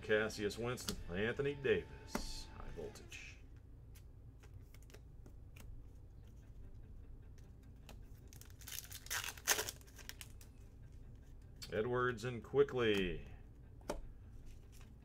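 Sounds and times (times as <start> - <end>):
card wrapper tearing open: 8.3 - 10.4.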